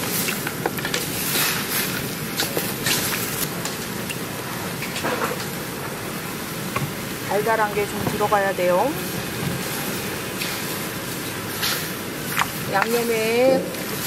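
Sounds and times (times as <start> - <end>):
ribs sizzling in a wok: 0.0 - 14.0.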